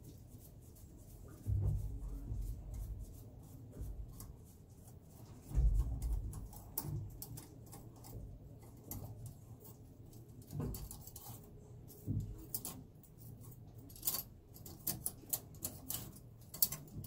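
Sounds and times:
dull thumps: 0:05.3 - 0:06.4.

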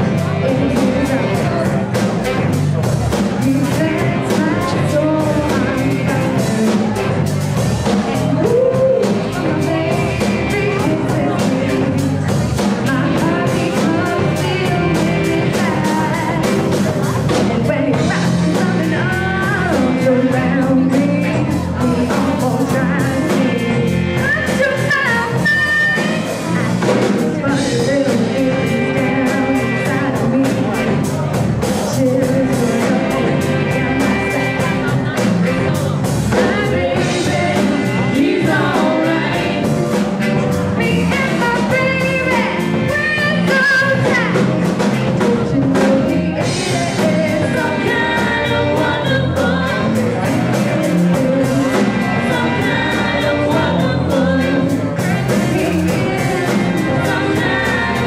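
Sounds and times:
woman singing: 0:00.0 - 0:02.5, 0:03.2 - 0:58.0
soul band playing: 0:00.0 - 0:58.0.

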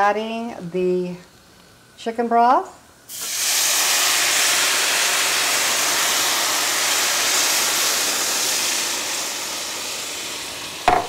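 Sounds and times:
broth sizzling in hot pan: 0:03.1 - 0:11.0.

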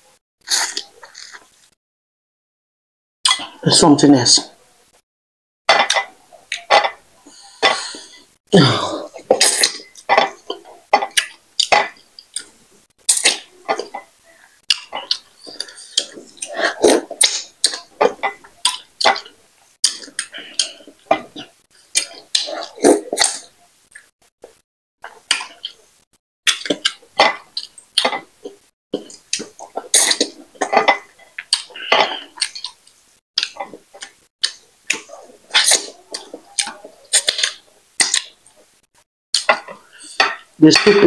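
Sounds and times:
slurping: 0:00.4 - 0:01.7, 0:07.4 - 0:38.8
wet chewing and lip smacking: 0:14.6 - 0:25.8, 0:32.4 - 0:38.7.

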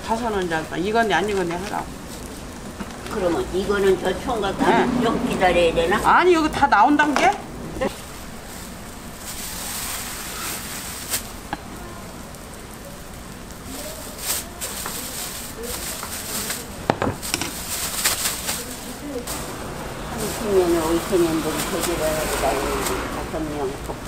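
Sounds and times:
steady hiss: 0:00.0 - 0:24.0
plastic bag crinkling: 0:07.8 - 0:23.5.

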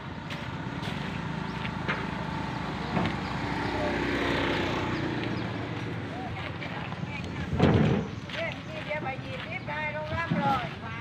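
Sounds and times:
open-air market background: 0:00.0 - 0:11.0
motorbike engine passing: 0:00.1 - 0:08.2.

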